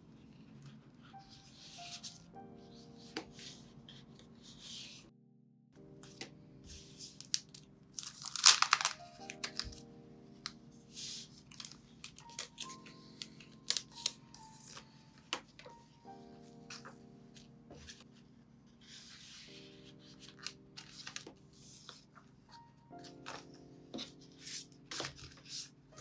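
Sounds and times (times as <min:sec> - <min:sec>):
soft lofi music: 0:00.0 - 0:26.0
plastic sheets crinkling: 0:07.2 - 0:09.8, 0:11.4 - 0:15.5, 0:20.2 - 0:22.0.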